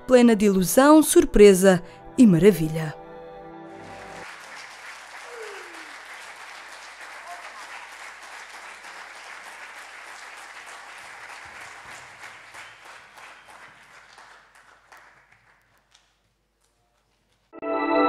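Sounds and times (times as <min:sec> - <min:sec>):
audience applauding: 0:03.7 - 0:17.2.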